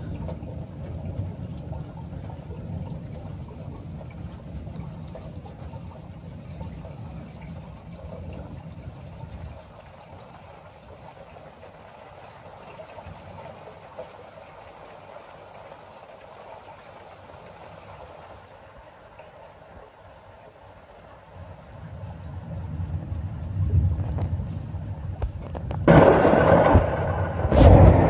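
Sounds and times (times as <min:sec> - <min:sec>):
steady rain: 0:00.0 - 0:28.0
thunder rumble: 0:21.8 - 0:28.0.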